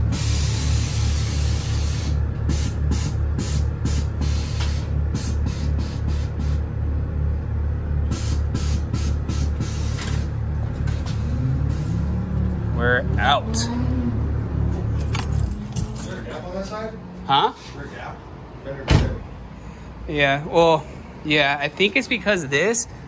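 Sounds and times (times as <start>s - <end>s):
air suspension hissing: 0.0s - 6.7s, 8.1s - 12.5s
steady low hum: 0.0s - 23.0s.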